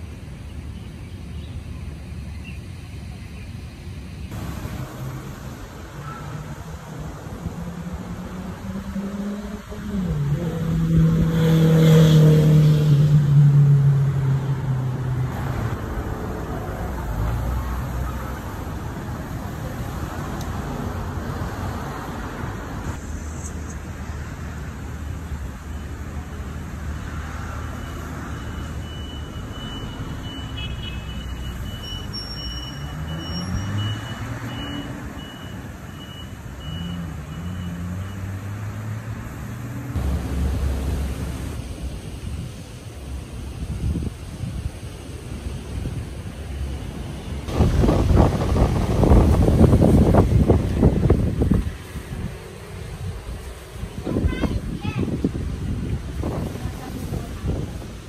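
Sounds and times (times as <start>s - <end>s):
road traffic rumble: 0.0s - 58.0s
vehicle engine passing by: 4.3s - 25.3s, 36.6s - 42.4s.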